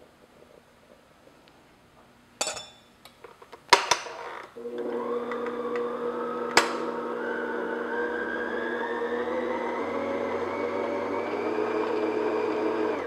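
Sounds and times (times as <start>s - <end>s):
bowl knocking and clinking: 2.4s - 2.9s
electric stand mixer running: 4.6s - 13.0s.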